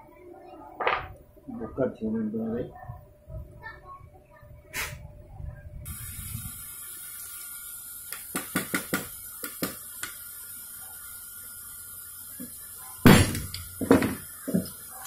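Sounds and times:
faint steady hiss: 5.8 - 15.0.

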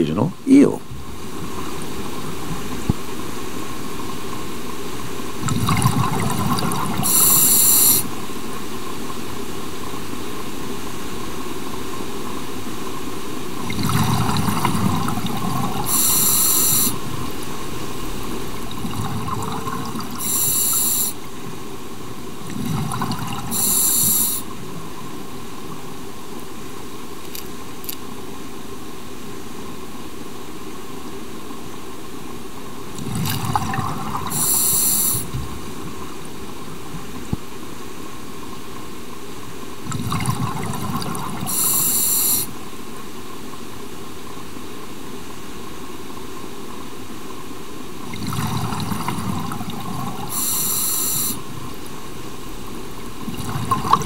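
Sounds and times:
steady underwater hiss: 0.0 - 54.0
diver breathing through regulator: 7.0 - 8.0, 15.8 - 17.0, 20.2 - 21.2, 23.5 - 24.4, 34.3 - 35.3, 41.5 - 42.5, 50.3 - 51.4.

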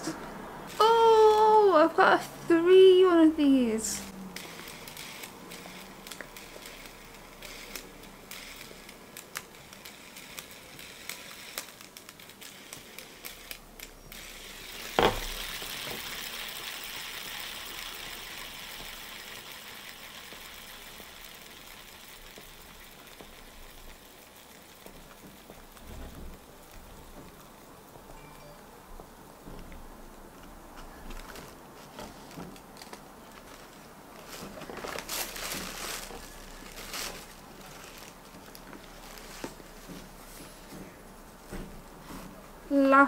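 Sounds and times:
fidget spinner whirring: 0.1 - 28.1.

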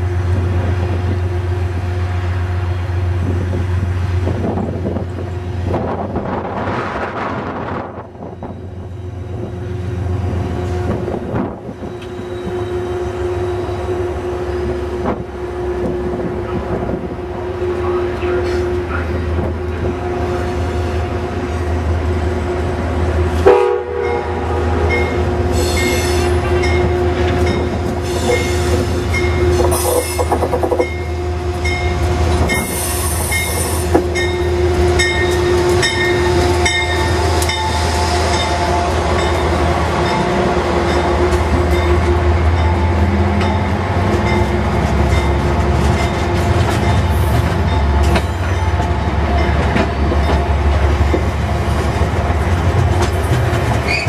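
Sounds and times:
train rumbling and clattering past: 0.0 - 54.0
locomotive horn blasts: 23.4 - 39.3.

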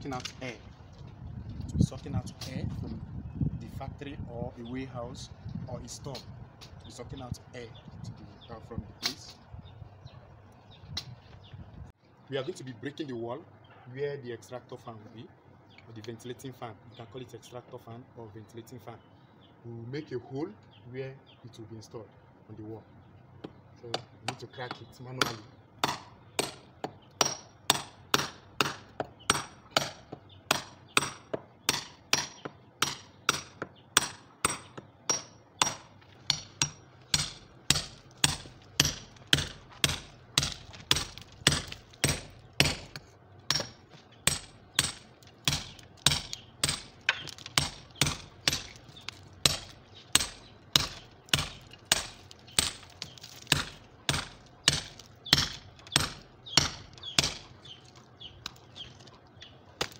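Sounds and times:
hammer striking chisel into wall: 23.4 - 48.8, 49.4 - 57.5.

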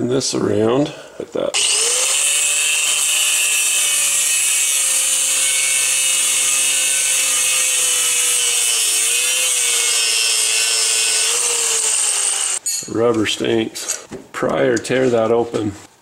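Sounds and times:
angle grinder cutting metal: 1.6 - 12.6.

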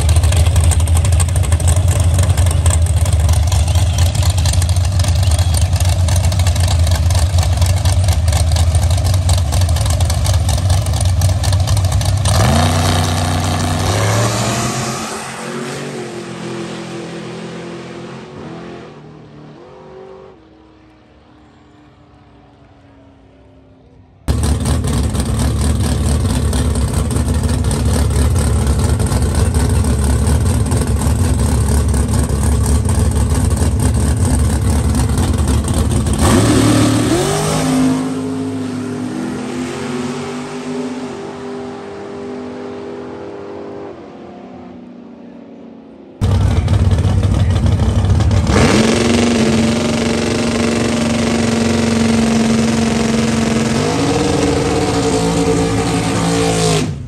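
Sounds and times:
racing car engines: 0.0 - 57.0
engine revving up: 12.2 - 20.8, 24.3 - 44.8, 46.2 - 57.0.

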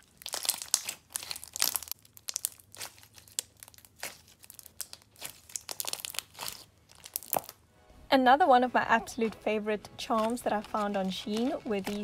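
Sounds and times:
crunchy slime being squeezed: 0.0 - 7.6, 11.3 - 12.0.

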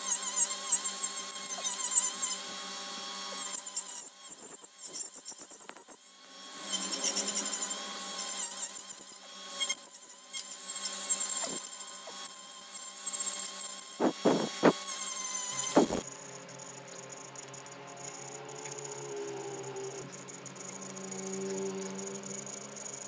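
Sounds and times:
rotary tool carving wood: 0.0 - 16.0.

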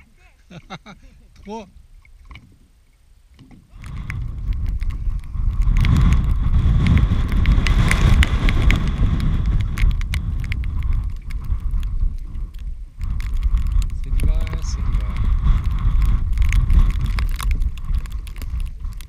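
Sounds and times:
strong wind buffeting microphone: 3.4 - 19.0
sharp ticks of snow: 3.8 - 19.0.

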